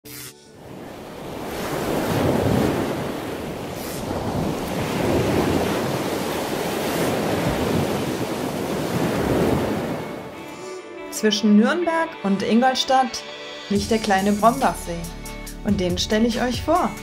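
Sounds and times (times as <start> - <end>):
ocean waves washing in: 0.5 - 10.8.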